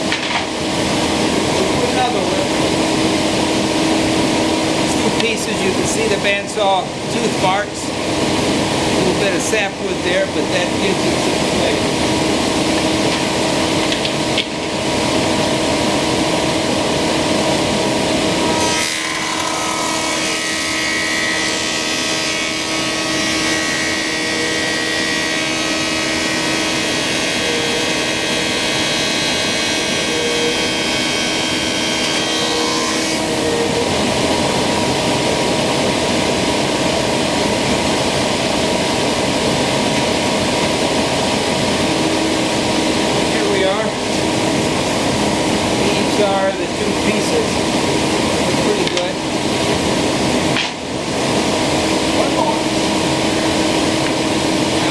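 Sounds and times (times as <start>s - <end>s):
thickness planer humming: 0.0s - 54.9s
planer cutting wood: 17.1s - 36.5s.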